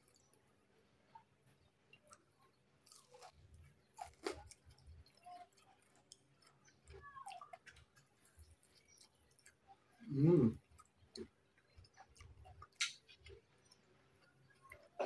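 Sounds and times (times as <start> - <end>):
person chewing food: 0.0 - 15.0
wet mouth clicks and smacks: 12.2 - 13.2.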